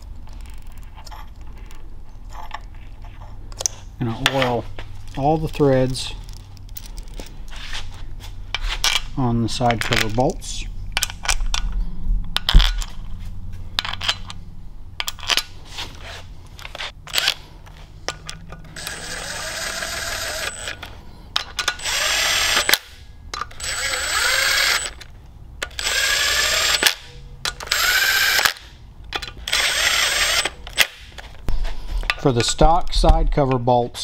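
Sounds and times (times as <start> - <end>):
metal bolts clinking: 8.5 - 11.8
impact driver motor whine: 18.7 - 20.8, 21.8 - 23.0, 23.6 - 25.0, 25.8 - 28.6, 29.5 - 30.6.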